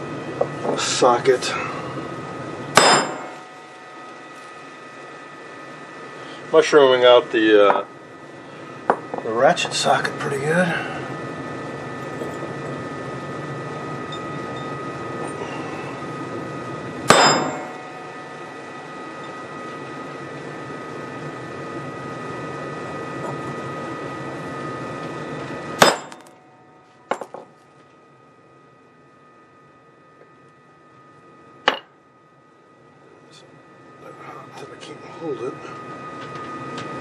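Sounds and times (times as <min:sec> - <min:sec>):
faint whine: 0:00.0 - 0:37.0
hammer striking metal: 0:02.8 - 0:04.1, 0:17.1 - 0:18.4, 0:25.8 - 0:26.4, 0:31.7 - 0:31.9.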